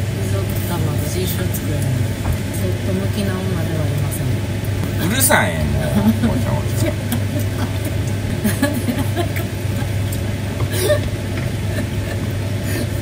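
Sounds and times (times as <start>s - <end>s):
steady low hum: 0.0s - 13.0s
laughter: 6.3s - 13.0s.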